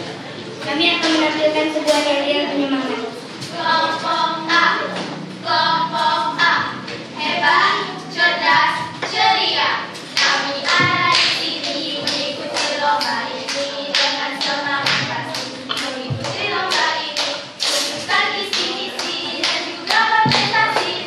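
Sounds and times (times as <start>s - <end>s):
hand claps: 10.0s - 21.0s.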